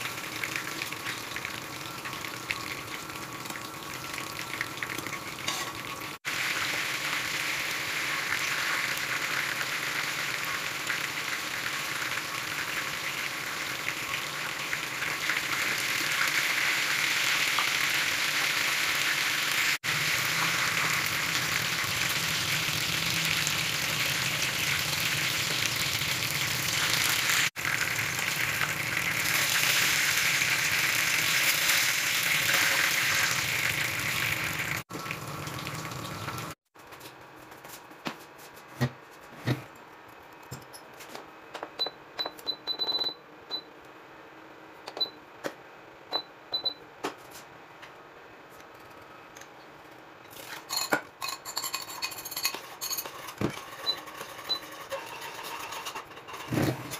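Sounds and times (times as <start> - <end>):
fish frying in hot oil: 0.0 - 36.6.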